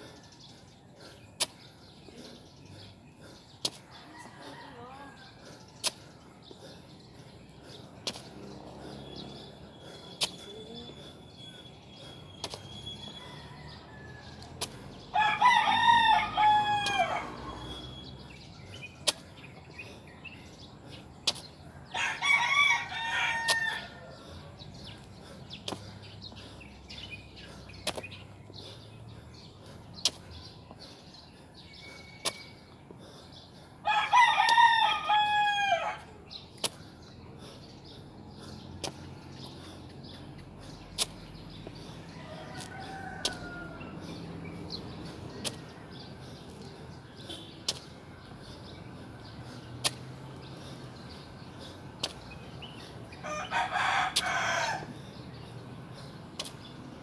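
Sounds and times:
rooster crowing: 15.2s - 17.6s, 21.9s - 24.1s, 33.9s - 36.0s, 42.1s - 43.9s, 53.2s - 54.9s.

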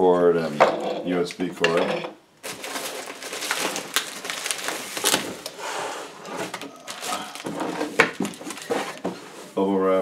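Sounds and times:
plastic crinkling: 2.4s - 9.5s
paper rustling: 2.4s - 9.6s.

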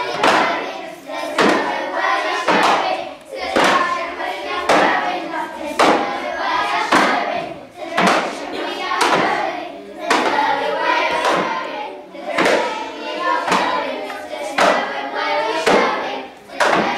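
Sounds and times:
children chanting in unison: 0.0s - 16.9s
steady struck beat: 1.3s - 5.1s, 5.7s - 6.2s, 6.8s - 9.5s, 10.1s - 13.9s, 16.6s - 16.9s.

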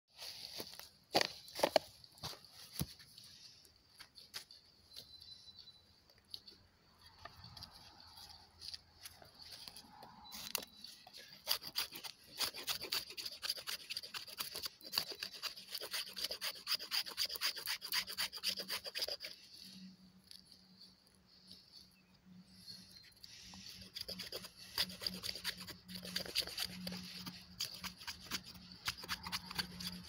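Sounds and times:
knife scraping wood: 7.1s - 20.6s, 23.2s - 30.0s.

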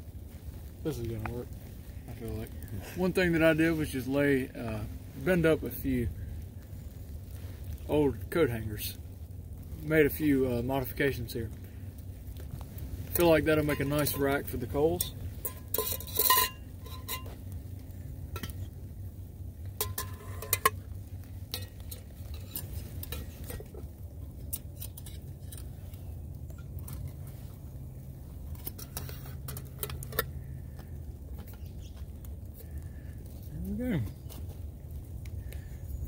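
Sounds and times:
metal pot lid clinking: 15.0s - 17.4s, 19.8s - 20.8s.

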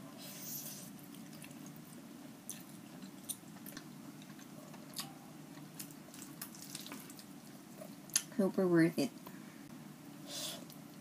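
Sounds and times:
steady low hum: 0.0s - 11.0s
person chewing food: 0.6s - 8.3s.

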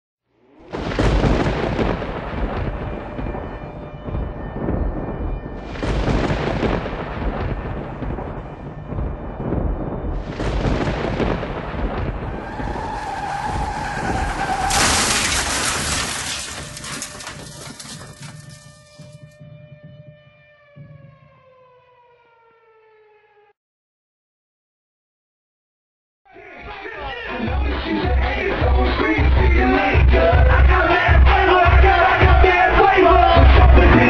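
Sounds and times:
heavy booming impacts: 0.7s - 18.6s.

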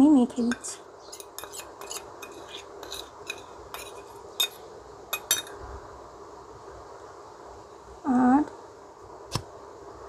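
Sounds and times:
metal spoon clinking on steel box: 5.2s - 5.5s.

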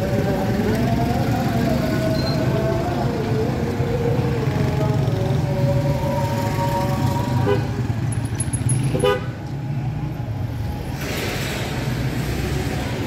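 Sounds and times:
car horns tooting: 7.4s - 8.0s, 8.8s - 9.4s.

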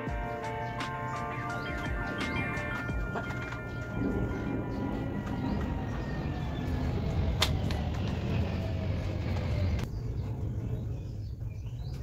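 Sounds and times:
low rumble: 2.0s - 12.0s.

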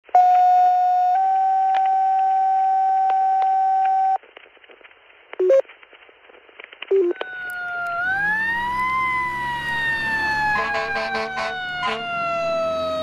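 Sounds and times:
radio alert tone: 5.4s - 5.6s, 10.1s - 13.0s.

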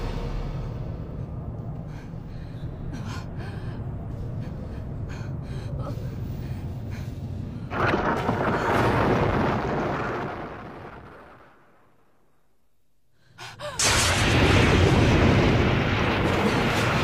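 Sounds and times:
low rumbling drone: 0.0s - 10.9s
woman breathing heavily: 1.6s - 7.7s, 13.0s - 13.9s.

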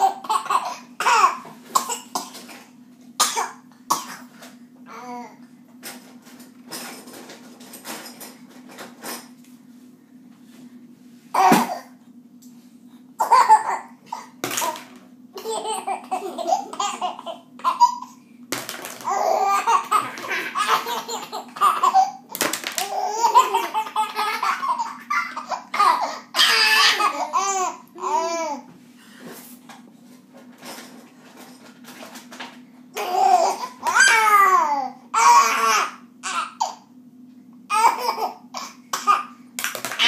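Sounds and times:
baby laughing: 0.0s - 1.4s, 13.2s - 14.8s, 15.4s - 18.2s, 19.0s - 28.6s, 33.0s - 36.8s, 37.7s - 39.3s.

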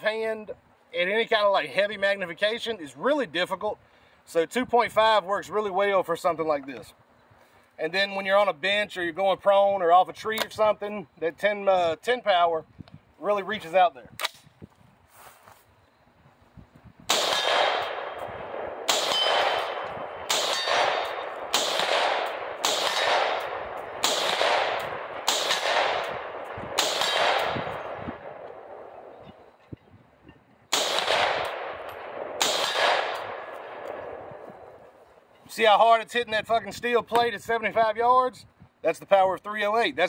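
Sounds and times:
rifle shots: 17.1s - 29.2s, 30.7s - 34.4s
steel target clanging: 18.9s - 21.3s.

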